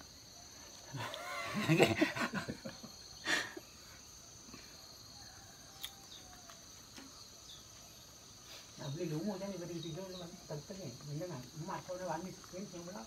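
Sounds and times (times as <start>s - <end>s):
insects chirring: 0.0s - 13.0s
man laughing: 0.9s - 3.6s.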